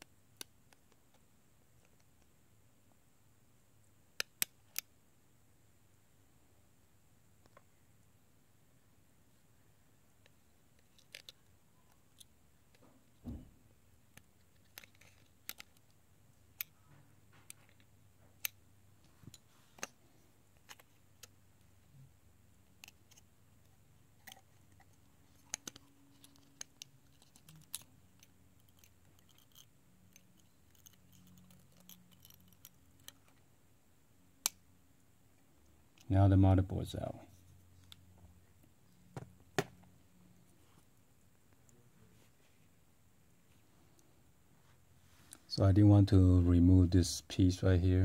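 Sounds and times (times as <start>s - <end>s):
small clicks and ticks: 24.2s - 33.4s.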